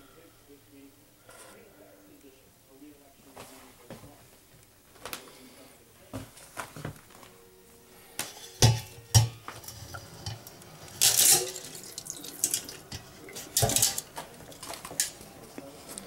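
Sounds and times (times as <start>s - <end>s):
metal bowl knocking: 8.4s - 14.7s
water splashing: 11.3s - 13.9s.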